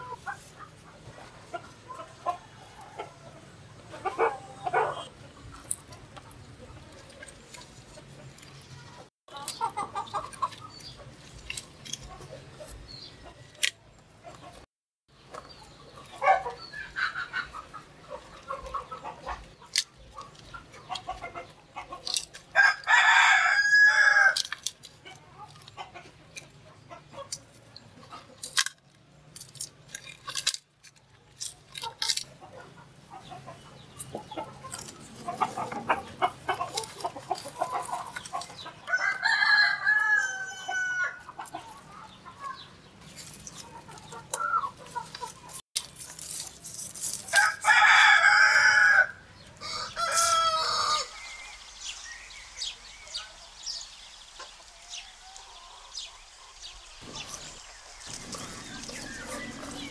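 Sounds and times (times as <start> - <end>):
chickens clucking: 0.0 - 53.6, 54.3 - 59.9
rooster crowing: 22.6 - 24.4, 38.9 - 41.2, 47.3 - 51.2.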